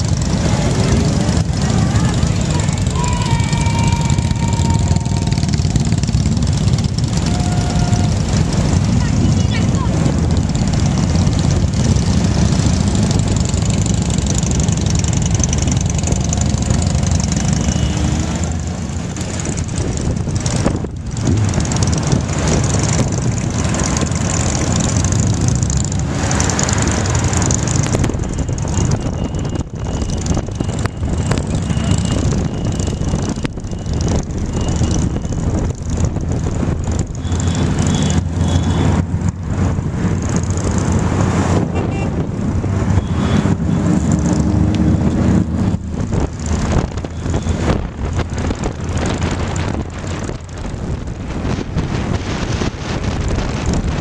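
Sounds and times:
motorcycle engine running: 0.0 - 54.0
other motorcycles: 0.0 - 54.0
wind noise on microphone: 19.1 - 25.4, 27.4 - 37.8, 38.6 - 54.0.

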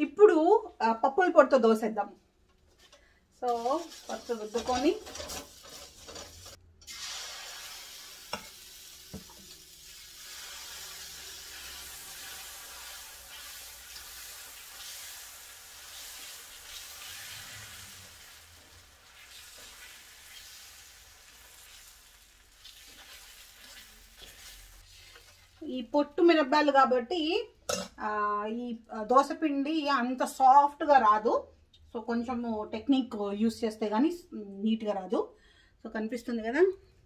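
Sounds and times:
ladle rubbing over pan: 3.5 - 7.2, 22.6 - 25.6
batter sizzling on hot pan: 3.5 - 25.7.

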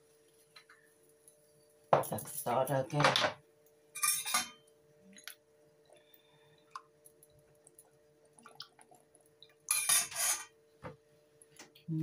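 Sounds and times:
metal spoon clinking on saucepan: 4.0 - 4.6, 9.7 - 10.5
sauce pouring and dripping: 5.2 - 9.7.

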